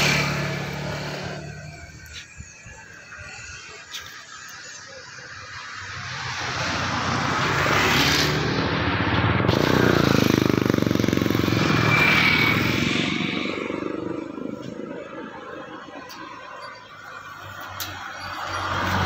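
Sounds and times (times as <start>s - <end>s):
vehicle passing by: 0.0s - 2.0s, 5.0s - 16.4s.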